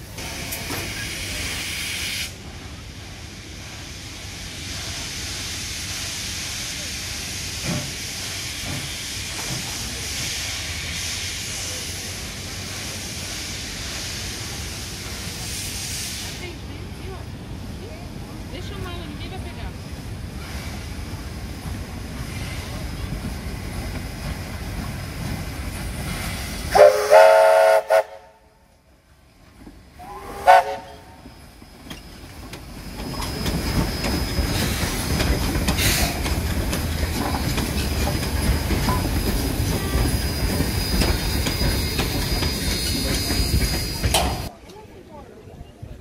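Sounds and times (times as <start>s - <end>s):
steam train rumbling past: 0.0s - 46.0s
steam locomotive whistle: 26.7s - 28.6s, 30.0s - 31.3s.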